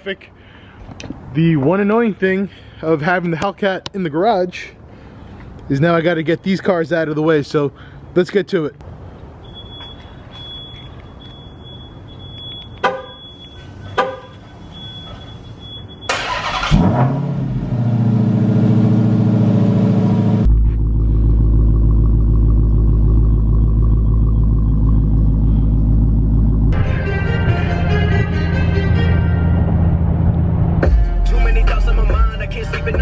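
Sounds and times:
car engine starting and idling: 10.4 - 33.0
car horn chirps: 12.5 - 15.5.

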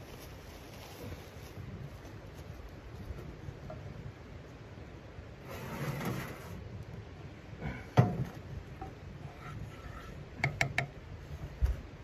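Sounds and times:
pan scraping on steel stove top: 9.2 - 10.2.

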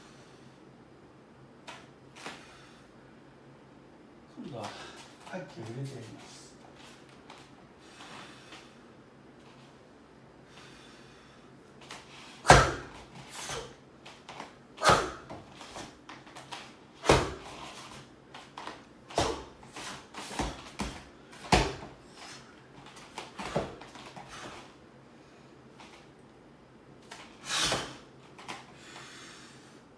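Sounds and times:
bare feet stamping on foam mats: 11.8 - 13.2, 14.0 - 22.0, 22.8 - 24.6.

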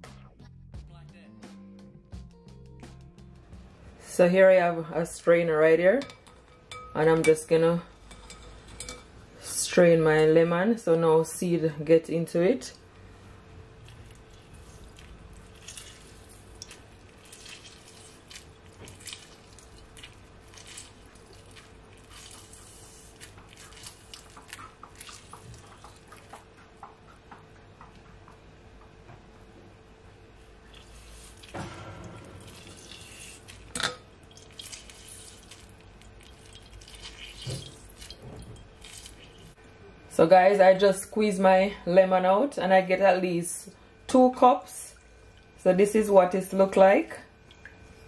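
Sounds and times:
lemon squelching: 13.8 - 26.4, 32.4 - 39.6
juice dripping into glass bowl: 13.8 - 26.6, 32.4 - 39.5, 47.4 - 48.0.

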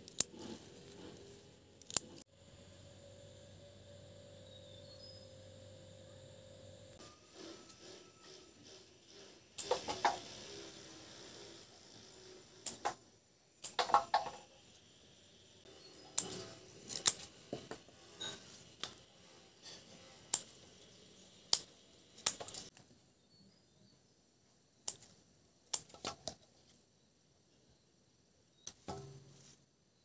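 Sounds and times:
scissors snipping stems: 0.0 - 2.2, 16.0 - 17.3, 20.2 - 20.6, 21.5 - 22.7, 24.8 - 26.4.

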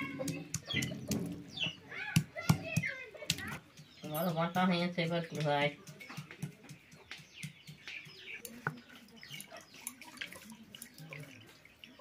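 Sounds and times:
small birds chirping: 0.0 - 12.0
stone pestle knocking and scraping: 5.3 - 8.9.

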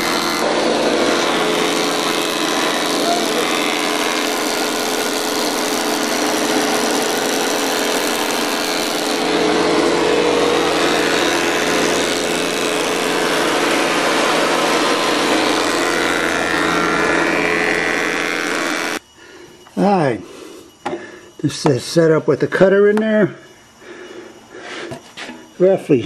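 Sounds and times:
planer machine drone: 0.0 - 19.0
cutterhead hissing through wood: 0.0 - 21.4, 23.7 - 25.5.

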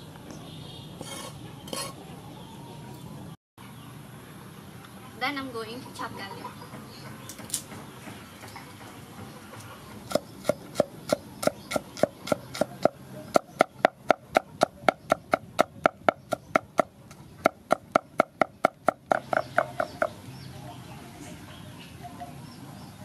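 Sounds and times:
cleaver chopping on wooden block: 10.1 - 20.2.

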